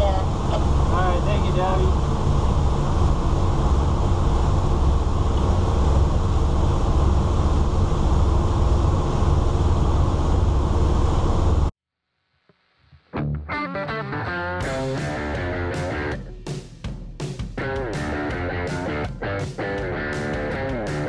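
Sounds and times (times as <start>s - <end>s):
boat engines droning: 0.0s - 11.7s
guitar music: 13.1s - 16.5s, 17.6s - 21.0s.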